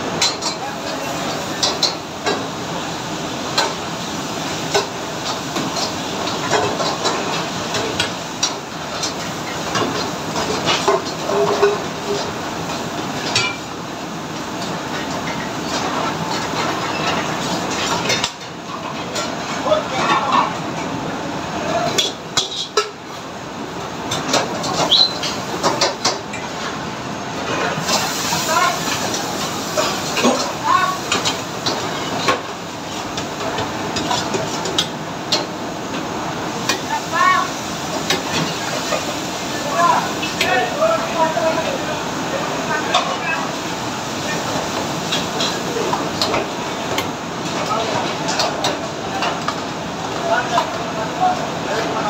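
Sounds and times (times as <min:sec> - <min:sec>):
food frying: 0:00.0 - 0:52.0
ladles clanking against woks: 0:00.1 - 0:02.6, 0:03.5 - 0:13.7, 0:21.8 - 0:23.1, 0:24.1 - 0:26.6, 0:27.5 - 0:36.0, 0:36.6 - 0:51.6
utensils clinking on pots: 0:00.2 - 0:02.4, 0:04.7 - 0:12.3, 0:13.2 - 0:13.7, 0:21.8 - 0:23.0, 0:44.2 - 0:49.6.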